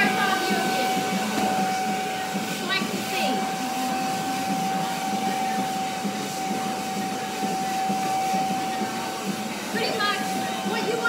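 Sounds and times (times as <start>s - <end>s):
vacuum cleaner whining: 0.0s - 11.0s.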